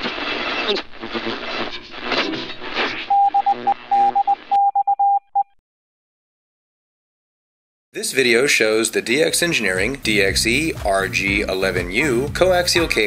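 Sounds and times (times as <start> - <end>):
shortwave radio static: 0.0 - 4.5
morse code tone pulses: 3.0 - 5.6.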